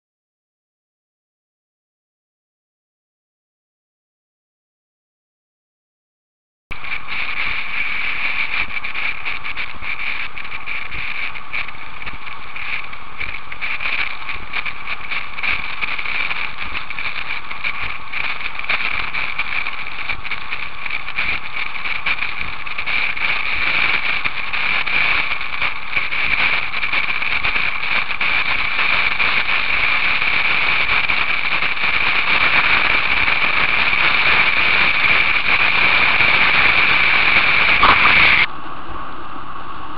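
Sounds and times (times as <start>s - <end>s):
water rushing on hull: 6.8s - 38.5s
wind rushing: 34.4s - 38.5s.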